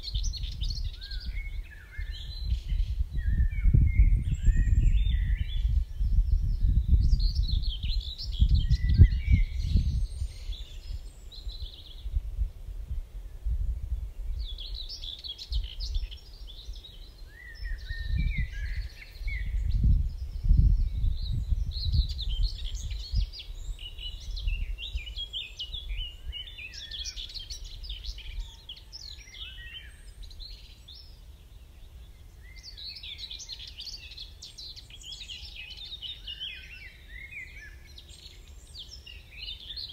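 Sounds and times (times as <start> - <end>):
small birds twittering: 0.0 - 39.9
low gusting rumble: 2.2 - 11.0, 18.0 - 23.7.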